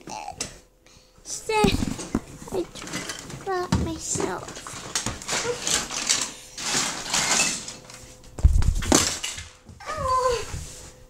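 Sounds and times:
handheld camera rustling and bumping: 0:01.5 - 0:05.6.

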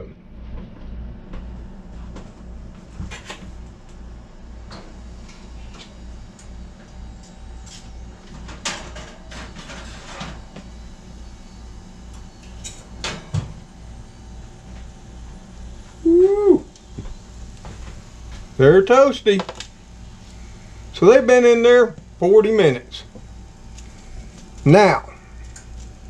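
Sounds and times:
low steady hum: 0:00.0 - 0:26.0.

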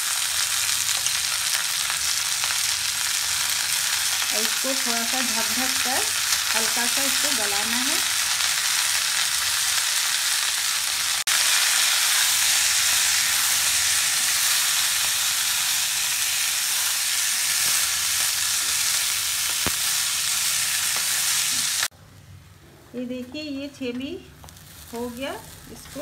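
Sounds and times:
peas sizzling in hot oil: 0:00.0 - 0:21.9, 0:24.4 - 0:26.0.

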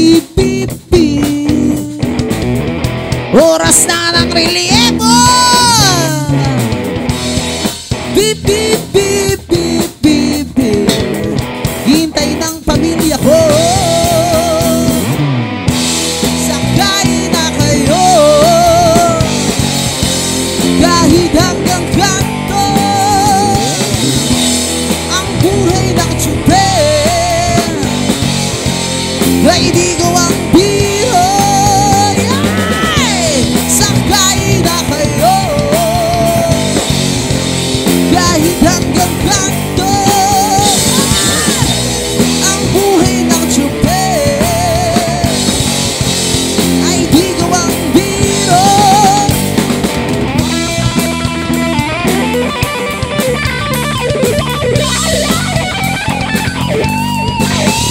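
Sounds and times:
man singing with vibrato: 0:00.0 - 0:02.2, 0:03.3 - 0:06.8, 0:08.0 - 0:15.2, 0:16.2 - 0:19.7, 0:20.5 - 0:24.3, 0:25.0 - 0:28.1, 0:29.2 - 0:37.1, 0:37.9 - 0:45.8, 0:46.5 - 0:49.6
bass guitar: 0:00.0 - 0:57.9
drum kit: 0:00.0 - 0:57.9
electric guitar: 0:00.0 - 0:57.9
rock band playing: 0:00.0 - 0:57.9.

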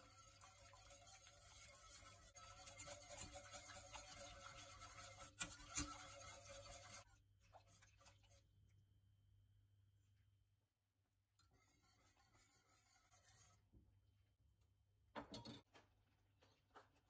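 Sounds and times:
whisk scraping in a pot: 0:00.0 - 0:08.5, 0:11.4 - 0:13.8
whisk knocking against pot: 0:00.9 - 0:07.0.

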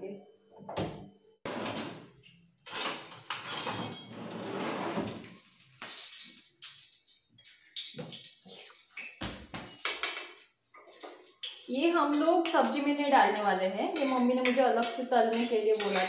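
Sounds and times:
steel spoon clinking on bowl and pan: 0:13.9 - 0:16.0.

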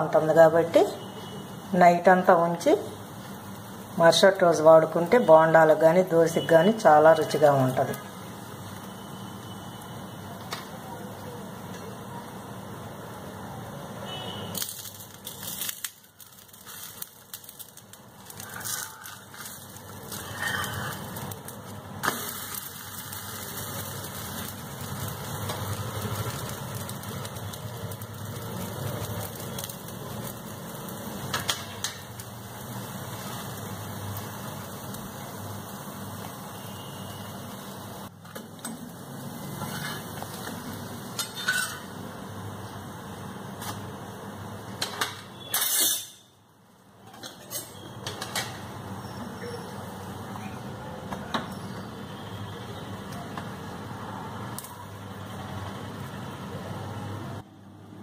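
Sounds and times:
batter sizzling on hot pan: 0:00.0 - 0:46.3, 0:51.4 - 0:57.5
metal spatula scraping pan: 0:39.5 - 0:40.1, 0:41.2 - 0:41.9.

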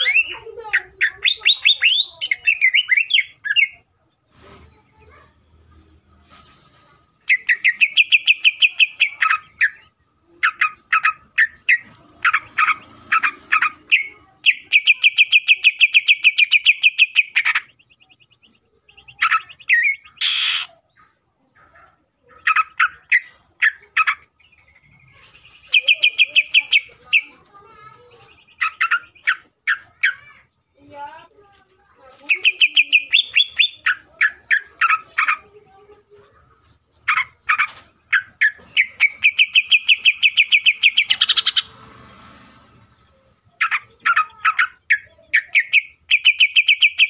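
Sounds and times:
bird singing trills: 0:00.0 - 0:03.8, 0:07.3 - 0:21.2, 0:22.2 - 0:31.3, 0:32.2 - 0:35.4, 0:36.2 - 0:41.7, 0:43.1 - 0:47.0
harsh rasping bird call: 0:19.2 - 0:20.8, 0:37.1 - 0:41.8.

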